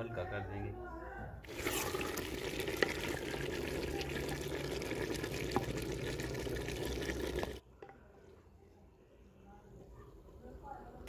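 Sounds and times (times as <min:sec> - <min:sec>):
curry bubbling in a pot: 0:01.5 - 0:07.6.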